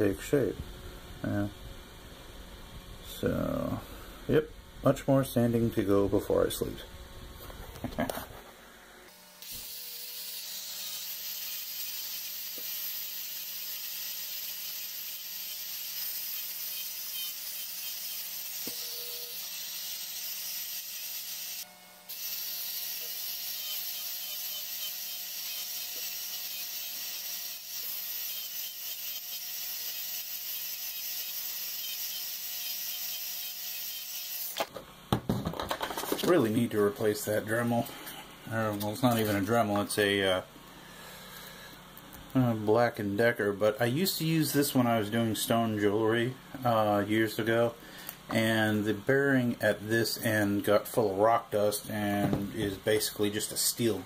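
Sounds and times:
rotary tool sanding wood: 0:09.4 - 0:34.6.

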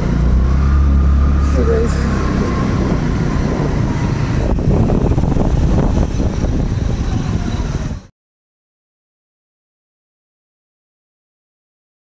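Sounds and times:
road rumble: 0:00.0 - 0:08.1
wind buffeting the microphone: 0:01.0 - 0:08.1.

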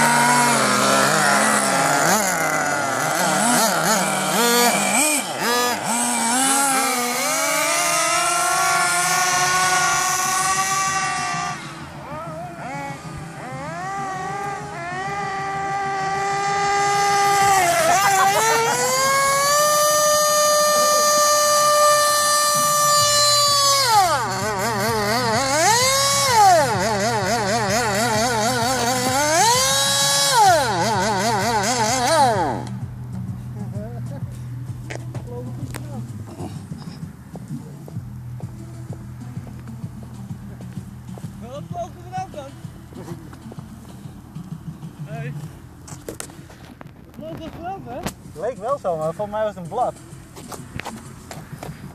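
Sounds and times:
small rc buggy engine revving: 0:00.0 - 0:32.8
steady low hum: 0:00.0 - 0:48.4
electronic siren wailing and warbling: 0:10.2 - 0:32.6.

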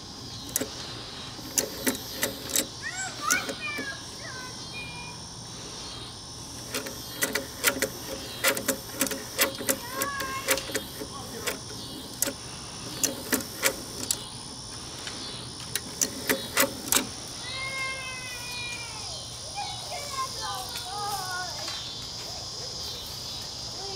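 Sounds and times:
cassette mechanism clicking: 0:00.4 - 0:00.8, 0:01.4 - 0:04.0, 0:06.5 - 0:17.3.

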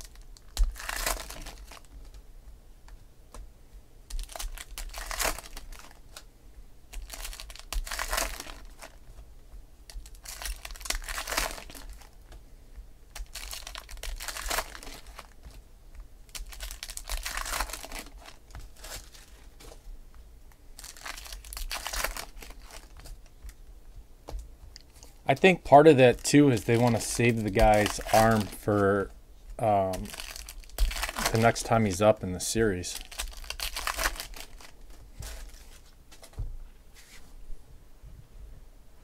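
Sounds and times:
wrappers crinkling and tearing: 0:00.0 - 0:02.2, 0:04.1 - 0:06.3, 0:06.9 - 0:09.1, 0:09.9 - 0:12.2, 0:13.1 - 0:15.6, 0:16.2 - 0:19.8, 0:20.8 - 0:23.3, 0:26.1 - 0:36.3.

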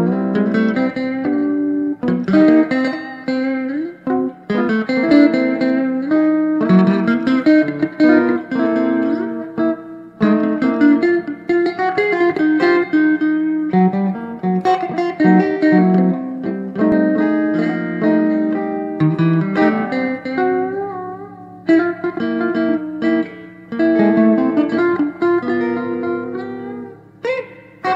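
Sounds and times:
electric guitars playing chords: 0:00.0 - 0:27.9.

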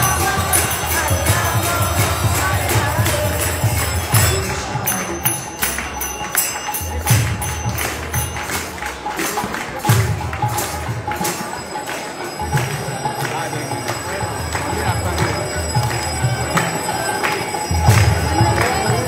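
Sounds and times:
voices singing: 0:00.0 - 0:06.5, 0:12.9 - 0:19.0
drum beats: 0:00.0 - 0:19.0
hand cymbals clashing: 0:00.0 - 0:19.0
harmonium drone: 0:00.0 - 0:19.0.

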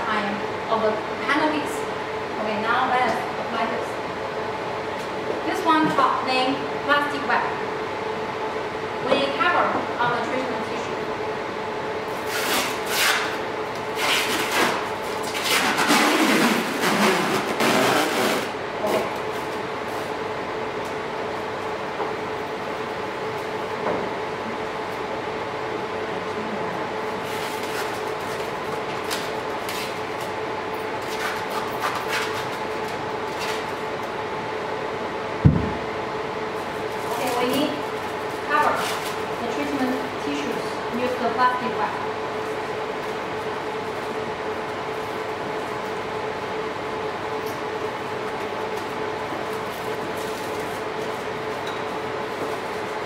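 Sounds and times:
electrical hum: 0:00.0 - 0:53.0
dull thump: 0:35.4 - 0:35.8.

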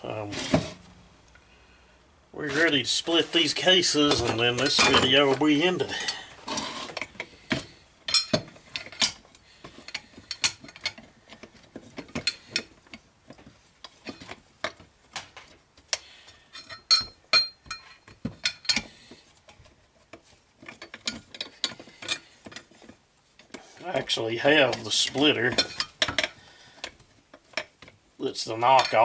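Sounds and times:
metal tools clinking on workbench: 0:16.5 - 0:18.9, 0:24.6 - 0:26.3, 0:28.5 - 0:29.0.

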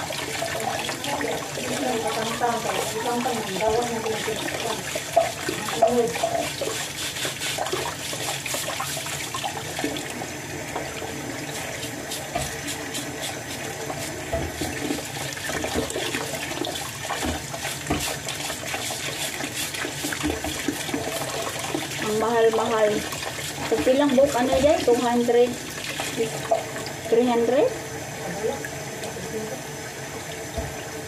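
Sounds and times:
tap water running into sink: 0:00.0 - 0:31.0
brush scrubbing crab shells: 0:00.6 - 0:09.9, 0:11.4 - 0:26.4.

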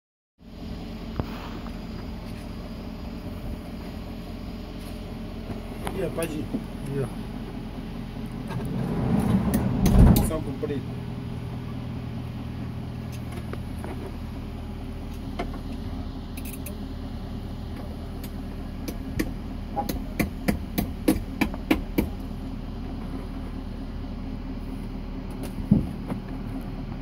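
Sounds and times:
petrol engine idling: 0:00.4 - 0:27.0
sharp engine knocks: 0:08.4 - 0:10.6, 0:18.2 - 0:22.2, 0:25.3 - 0:26.4.

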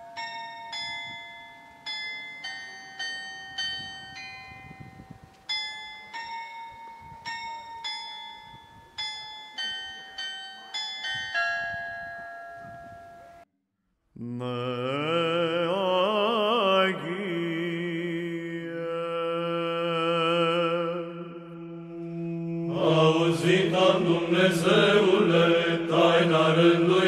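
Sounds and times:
bells ringing: 0:00.0 - 0:13.4.

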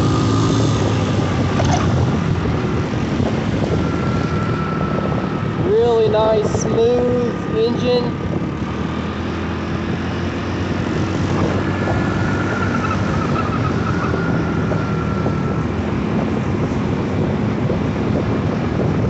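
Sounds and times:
motorcycle engine running steadily: 0:00.0 - 0:19.0
wind rush over microphone: 0:00.0 - 0:19.0.

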